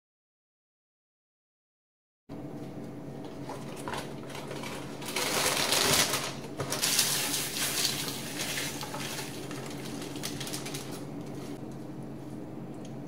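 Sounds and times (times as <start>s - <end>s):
steady low hum: 2.3s - 13.0s
cereal pouring into a bowl: 4.6s - 11.0s.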